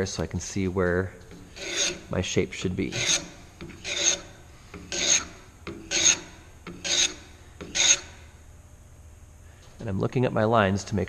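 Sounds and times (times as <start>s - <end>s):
block plane shaving wood: 1.5s - 8.1s.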